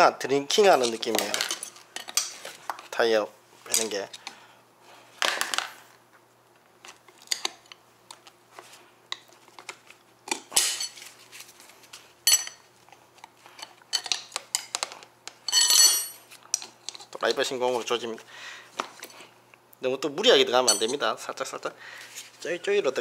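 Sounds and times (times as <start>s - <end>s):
metal tire tools clinking on rim: 15.5s - 16.2s, 20.6s - 21.0s.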